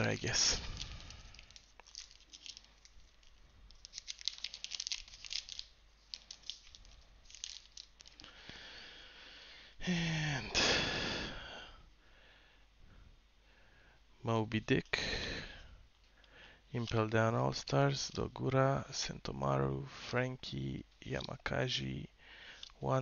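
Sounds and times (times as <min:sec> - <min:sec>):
plastic wrapper tearing and crinkling: 0:00.0 - 0:08.3.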